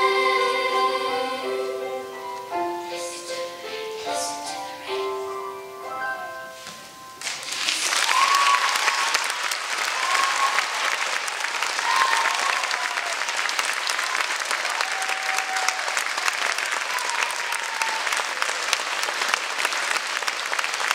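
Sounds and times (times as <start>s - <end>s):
audience applauding: 7.2s - 20.9s.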